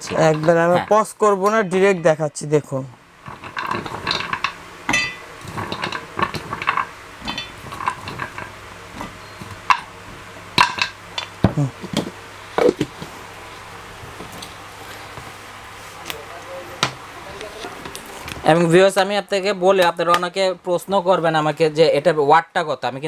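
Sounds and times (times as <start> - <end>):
roots clattering into steel jar: 0.0 - 0.8, 3.2 - 9.9.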